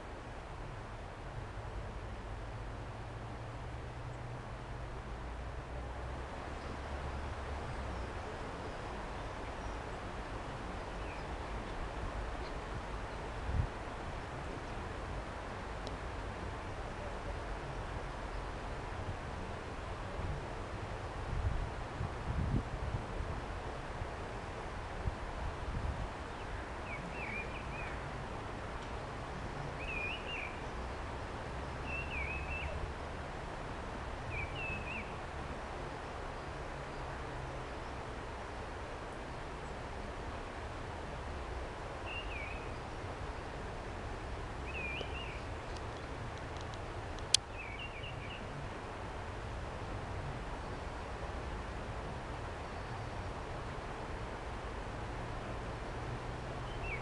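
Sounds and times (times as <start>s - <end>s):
faint bird chirps: 29.8s - 30.9s, 31.8s - 32.8s, 42.0s - 42.8s, 44.7s - 45.8s.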